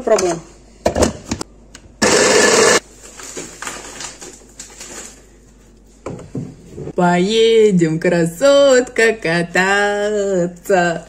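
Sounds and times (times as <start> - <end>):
hand blender chopping: 2.0 - 2.8.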